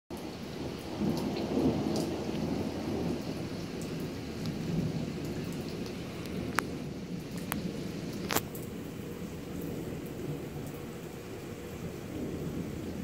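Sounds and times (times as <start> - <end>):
raindrops ticking: 0.1 - 13.0
steady rain: 0.1 - 13.0
thunder rumbling: 0.1 - 13.0.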